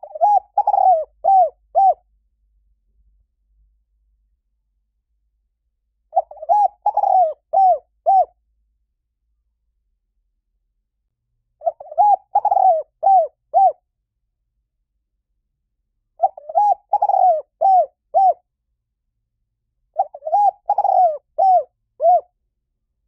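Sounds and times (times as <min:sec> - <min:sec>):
dove cooing: 0:00.0 - 0:02.0, 0:06.1 - 0:08.3, 0:11.6 - 0:13.8, 0:16.2 - 0:18.4, 0:20.0 - 0:22.3.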